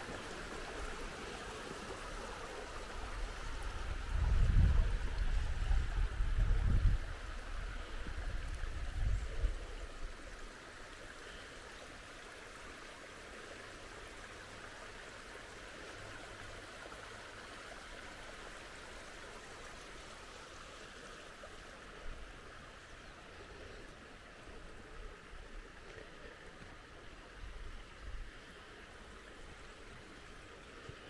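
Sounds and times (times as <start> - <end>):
creek flowing: 0.0 - 31.0
wind buffeting microphone: 3.2 - 9.8.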